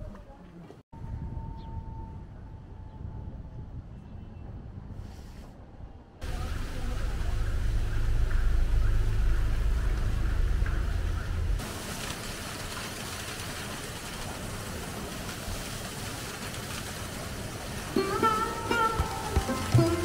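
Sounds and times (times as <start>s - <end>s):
heavy low rumble: 6.2s - 12.6s.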